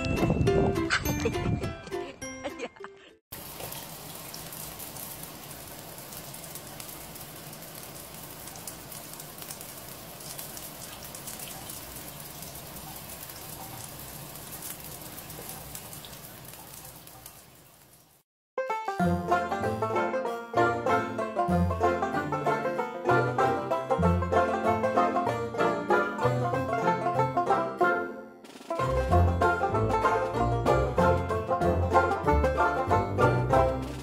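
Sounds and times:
shower water splashing: 3.3s - 18.3s.

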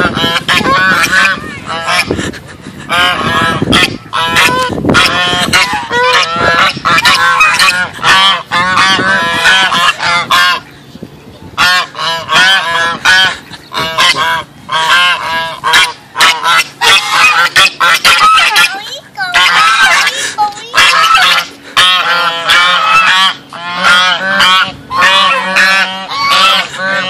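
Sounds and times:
geese honking: 0.0s - 10.8s, 11.6s - 27.0s.

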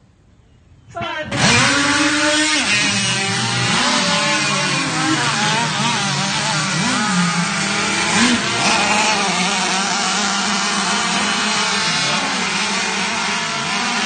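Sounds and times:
racing boat engines: 1.3s - 14.0s.

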